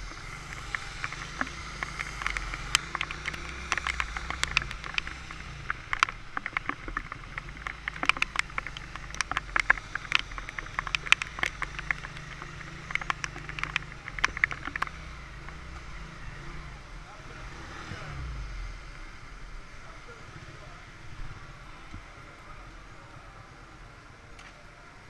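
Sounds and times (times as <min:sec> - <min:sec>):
raindrops tapping on camera: 0:00.0 - 0:16.4
motorbike engine running: 0:00.0 - 0:16.5.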